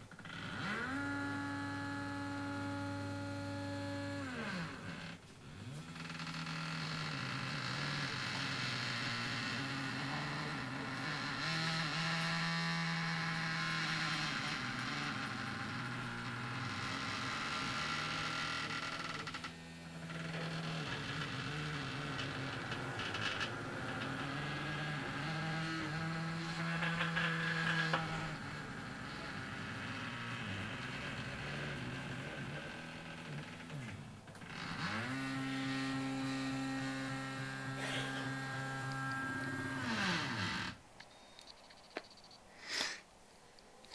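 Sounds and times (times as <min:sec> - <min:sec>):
stepper motors whining: 0:00.2 - 0:40.8.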